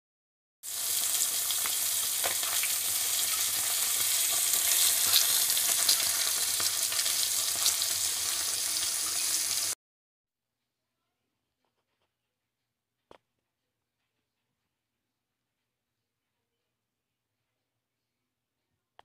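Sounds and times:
fish frying in oil: 0.6s - 9.8s.

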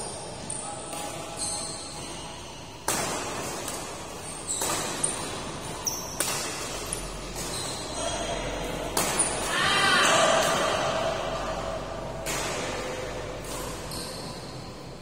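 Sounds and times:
shoe squeaks on court: 1.3s - 2.7s, 4.2s - 8.2s, 13.6s - 14.7s
racket hitting shuttlecock: 2.8s - 7.9s, 8.7s - 14.5s.

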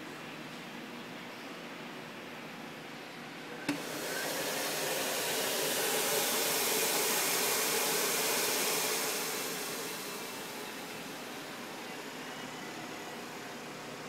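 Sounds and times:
blower running: 3.7s - 14.0s.

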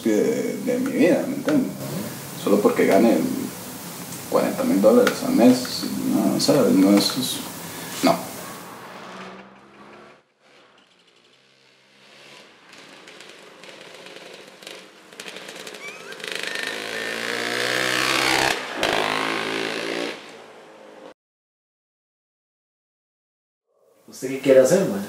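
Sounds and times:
motorcycle engine running: 10.8s - 20.2s.

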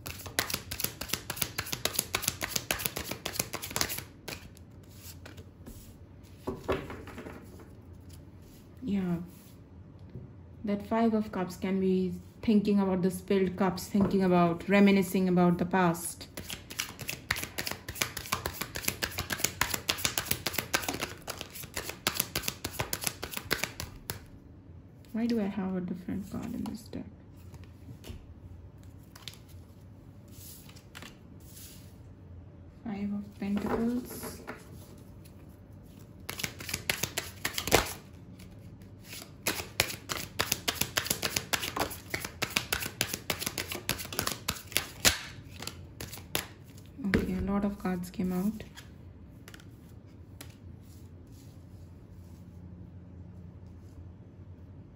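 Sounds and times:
cards being shuffled: 0.0s - 8.2s, 16.3s - 24.3s, 28.8s - 31.9s, 33.3s - 46.9s, 48.6s - 51.0s.

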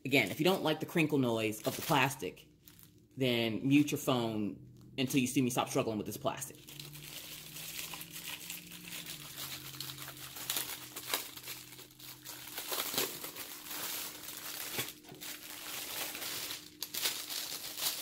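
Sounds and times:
plastic wrapping crinkling: 0.1s - 3.0s, 6.5s - 18.0s.

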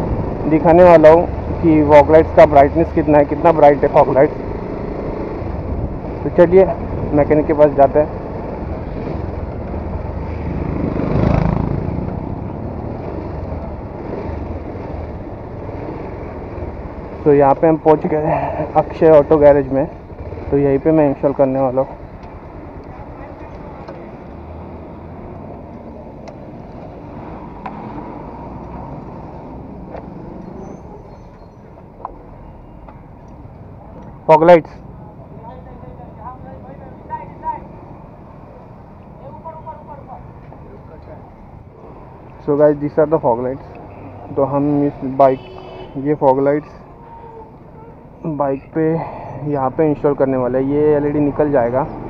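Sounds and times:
motorcycle engine: 4.4s - 31.0s.

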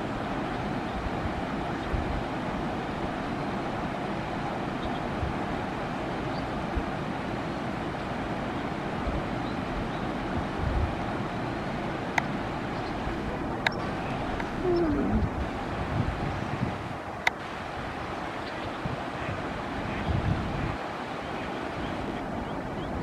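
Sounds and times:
water rushing over a dam: 0.0s - 23.0s
wind thumps on microphone: 13.6s - 18.0s, 18.7s - 20.8s.

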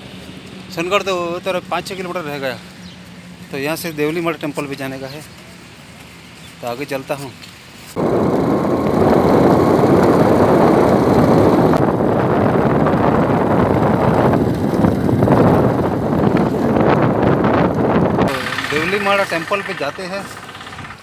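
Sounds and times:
vehicle running noise: 0.0s - 21.0s
wind buffeting microphone: 7.9s - 21.0s.

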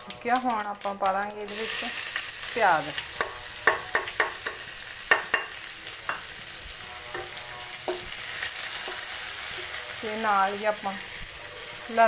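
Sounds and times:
onions sizzling in oil: 0.0s - 12.0s
spatula knocking against pan: 3.2s - 6.2s.

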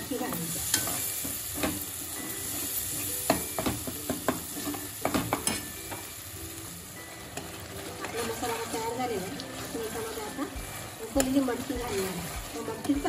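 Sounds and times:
sizzling in oil: 0.0s - 13.0s
metal spatula scraping pan: 7.4s - 13.0s.

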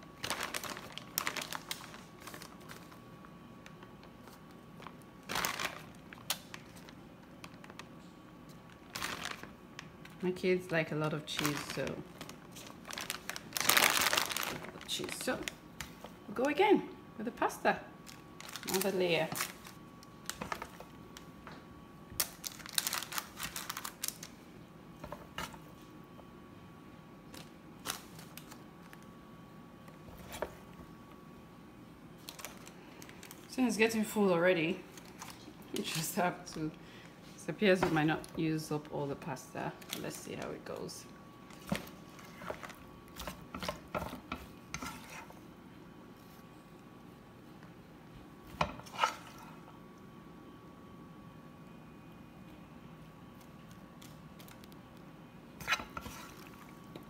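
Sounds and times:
plastic bag crinkling: 0.0s - 16.6s, 18.0s - 21.3s, 22.2s - 24.4s, 27.3s - 29.1s, 32.2s - 33.9s, 34.7s - 36.6s, 39.8s - 44.3s.

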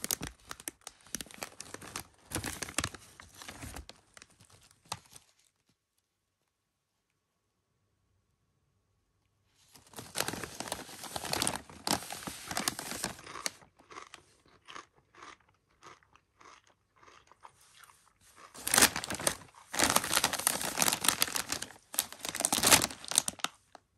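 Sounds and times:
chip bag crinkling: 0.0s - 5.7s, 9.7s - 23.8s
chip crunching: 10.0s - 23.7s.

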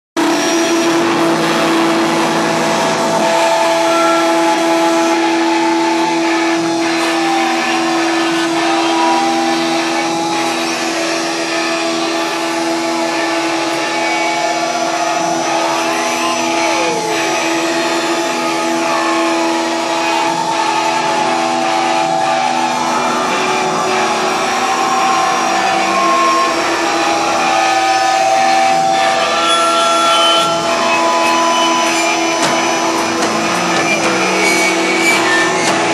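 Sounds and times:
loud wall of noise: 0.2s - 35.9s
low drone: 0.2s - 35.9s
sliding whistling tones: 3.1s - 35.9s.

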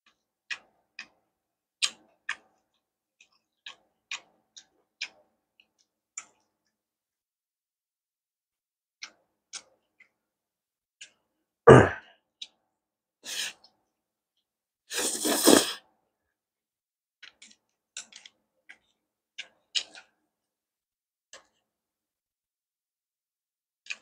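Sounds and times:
wet chewing clicks: 1.8s - 6.5s, 17.2s - 20.2s
loud mouth sound: 11.7s - 12.1s, 14.9s - 15.8s
slurping noodles: 14.9s - 15.8s.

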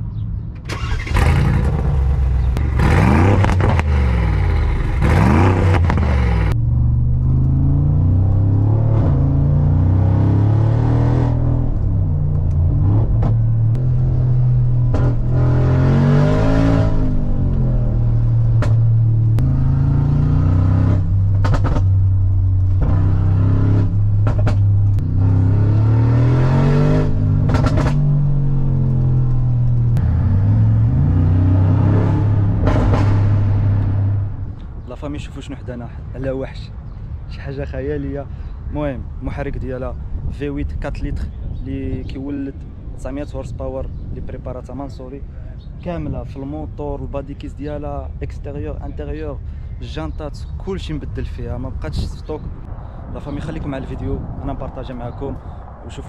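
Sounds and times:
car engine revving: 0.7s - 34.8s
exhaust crackling: 0.7s - 34.9s.

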